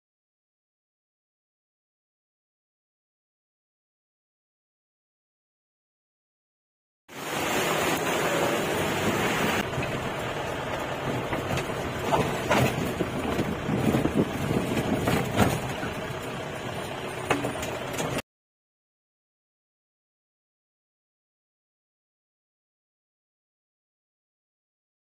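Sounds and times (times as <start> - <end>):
engine and road noise: 7.1 - 18.2
knocks and rattles: 9.6 - 18.2.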